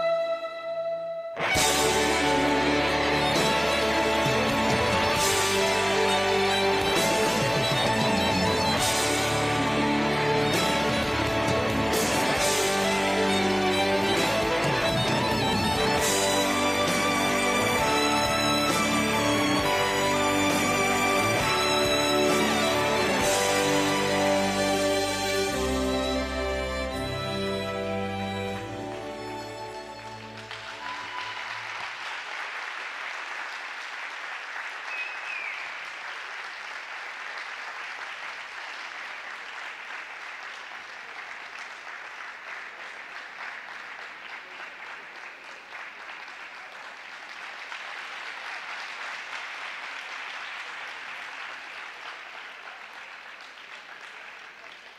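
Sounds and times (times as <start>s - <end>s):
skating music: 0.0s - 31.9s
audience applauding: 1.4s - 54.9s.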